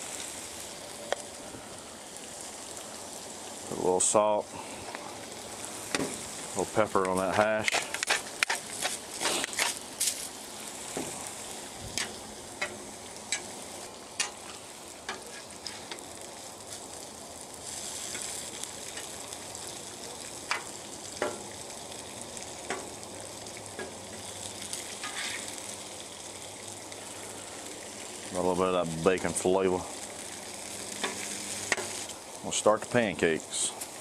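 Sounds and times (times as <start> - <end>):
bacon sizzling on a griddle: 0.0 - 34.0
metal spatula scraping steel: 25.0 - 25.5.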